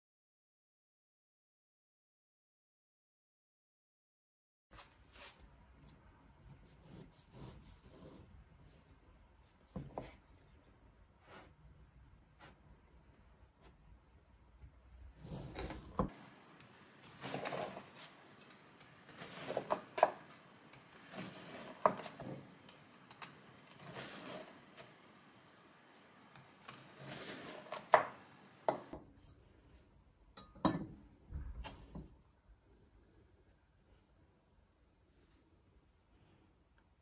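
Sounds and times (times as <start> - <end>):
bread knife sawing through loaf: 17.2 - 18.0.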